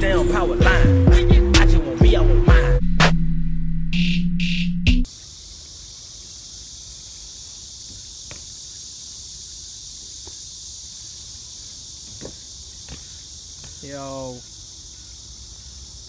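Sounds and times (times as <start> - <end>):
high-pitched insect chorus: 5.0 - 16.0.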